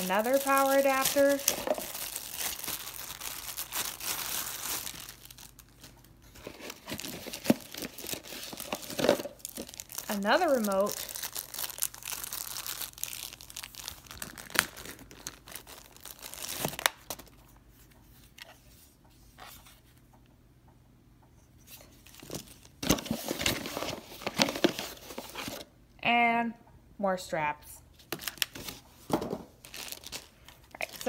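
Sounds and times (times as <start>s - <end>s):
plastic bags crinkling: 0.0s - 17.4s, 29.5s - 31.0s.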